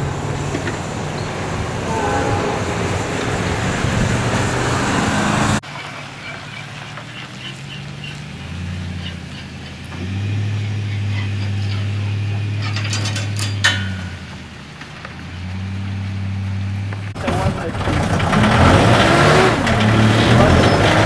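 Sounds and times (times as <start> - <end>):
engine running at low pitch: 0.0 - 21.0
truck passing with road noise: 0.0 - 21.0.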